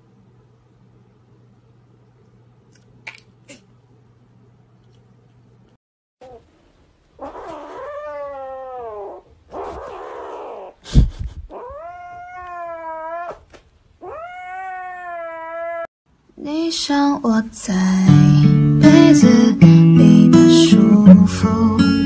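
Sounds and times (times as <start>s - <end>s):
kitten yowling: 7.2s - 10.8s, 11.5s - 15.9s.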